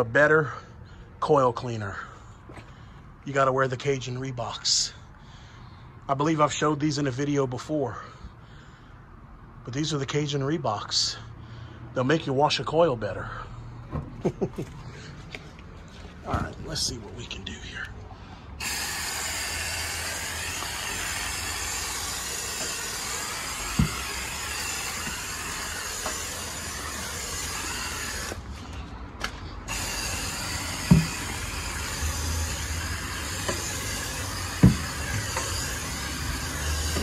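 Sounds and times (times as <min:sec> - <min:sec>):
hose nozzle spraying water: 0:18.6 - 0:28.5, 0:29.6 - 0:37.0.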